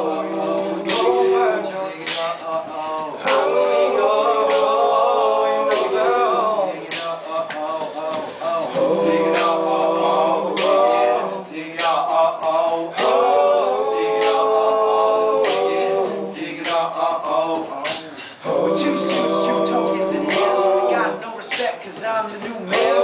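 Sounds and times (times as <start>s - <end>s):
male choir singing a cappella: 0.0s - 23.0s.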